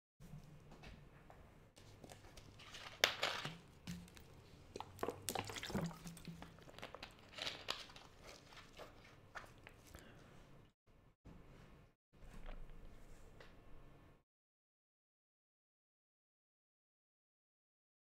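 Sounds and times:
plastic water bottle crinkling: 0:01.9 - 0:09.9.

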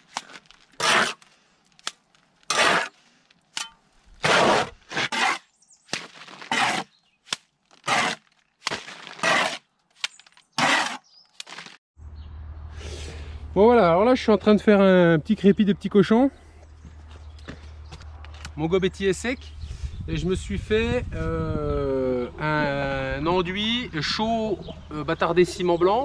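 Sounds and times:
trowel scraping mortar: 0:00.0 - 0:01.3, 0:02.4 - 0:03.0, 0:04.2 - 0:07.0, 0:07.7 - 0:09.7, 0:10.5 - 0:11.8.

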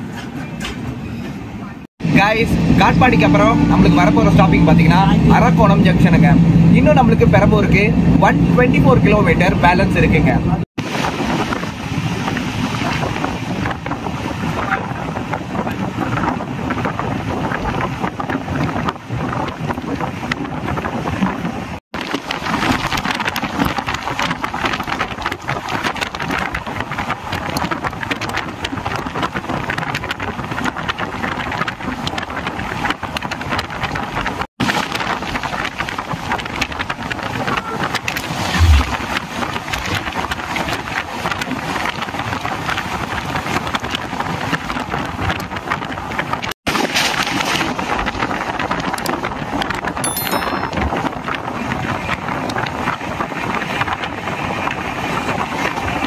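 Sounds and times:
wind rushing: 0:02.0 - 0:21.7, 0:38.2 - 0:39.4
low thump: 0:38.6 - 0:39.1.

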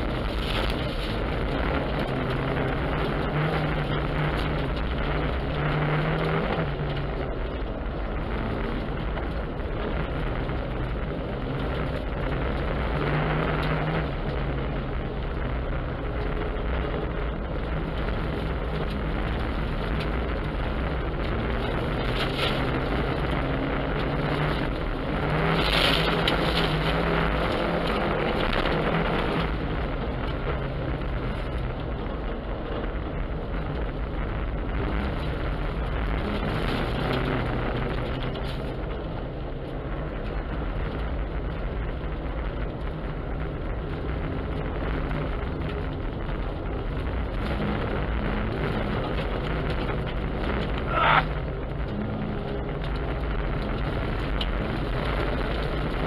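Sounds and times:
tyres ploughing through snow: 0:00.0 - 0:33.0
car engine running under load: 0:00.0 - 0:56.0
road rush: 0:00.0 - 0:56.0.

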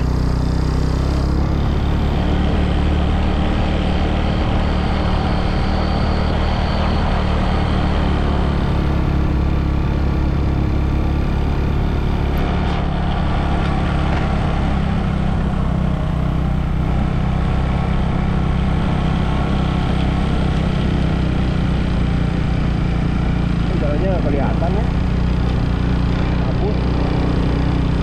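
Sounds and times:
road noise: 0:00.0 - 0:28.0
vehicle engine humming: 0:00.0 - 0:28.0.

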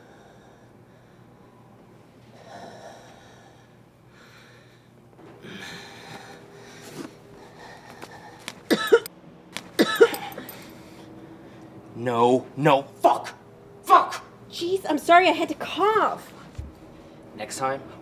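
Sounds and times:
person breathing heavily: 0:00.0 - 0:01.7, 0:02.3 - 0:08.7
woman coughing: 0:08.7 - 0:09.1, 0:09.8 - 0:10.5.

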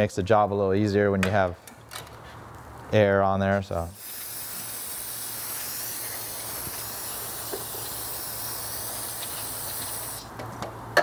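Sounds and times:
compressed air hissing from blow gun: 0:03.9 - 0:10.3.

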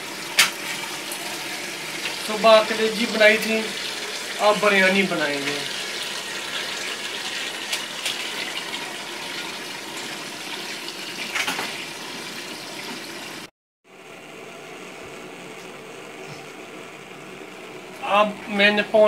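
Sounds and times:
tap water filling a metal pot: 0:00.0 - 0:13.5.

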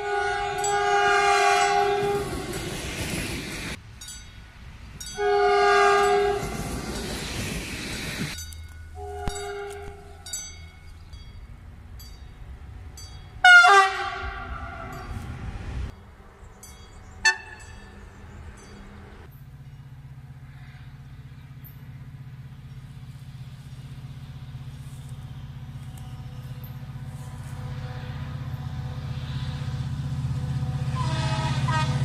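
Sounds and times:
locomotive horn sounding: 0:00.0 - 0:02.7, 0:05.1 - 0:06.8, 0:08.6 - 0:10.5, 0:13.4 - 0:15.7, 0:17.1 - 0:19.3, 0:25.0 - 0:32.0
diesel locomotive engine humming: 0:00.0 - 0:32.0
short sharp horn toot: 0:09.0 - 0:10.2.

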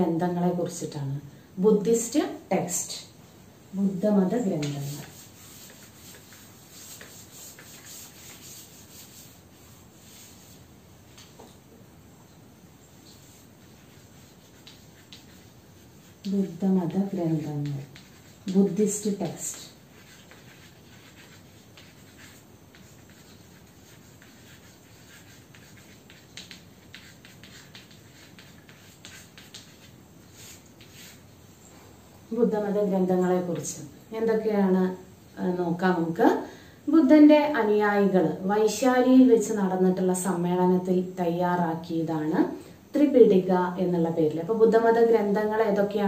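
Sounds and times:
steady low hiss: 0:00.0 - 0:46.0
eraser rubbing on chalkboard: 0:04.2 - 0:10.7, 0:12.8 - 0:31.6.

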